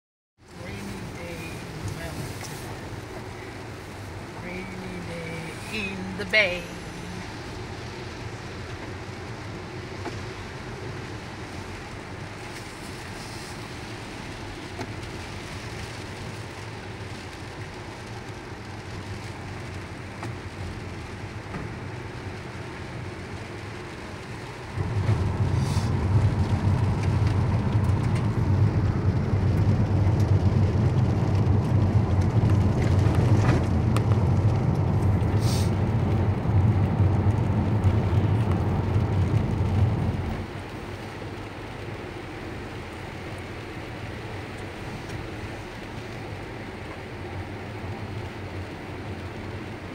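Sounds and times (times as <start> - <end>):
road and rain noise in car: 0.4 - 49.9
loud low rumble: 24.7 - 40.5.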